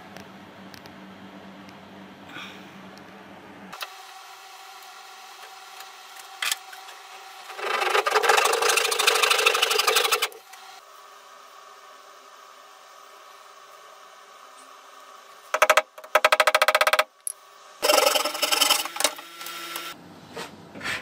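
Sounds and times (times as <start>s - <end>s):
hand saw cutting wood: 7.5s - 10.4s.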